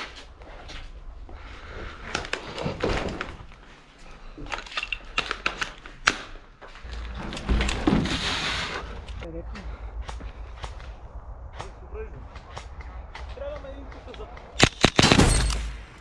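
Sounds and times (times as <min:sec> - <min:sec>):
low rumble: 0:06.8 - 0:14.6
sharp crack: 0:10.0 - 0:16.0.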